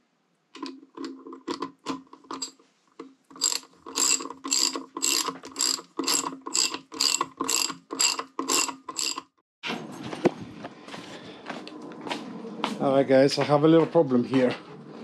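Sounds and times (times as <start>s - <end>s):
ratchet wrench clicking: 3.3s - 9.3s.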